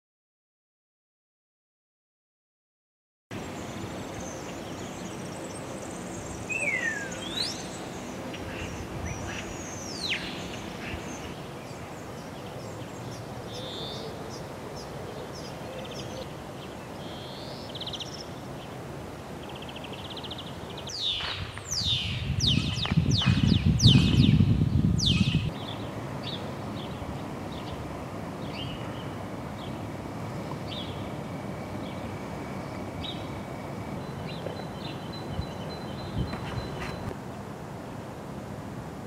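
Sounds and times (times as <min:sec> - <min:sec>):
birds calling: 0:03.4 - 0:37.1
whistled bird notes sweeping: 0:06.4 - 0:07.8.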